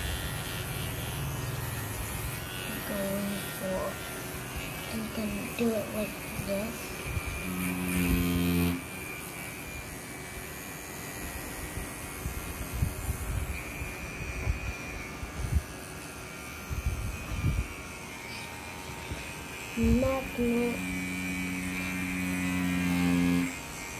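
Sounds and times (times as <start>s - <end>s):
tattoo pen buzzing: 0.0s - 23.9s.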